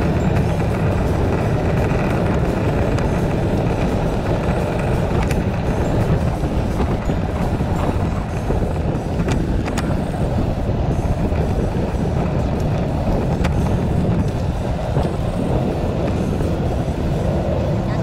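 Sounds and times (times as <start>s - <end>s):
sharp bicycle rattles: 0.0s - 17.4s
bicycle rumbling on paved path: 0.0s - 18.0s
wind on microphone: 0.0s - 18.0s.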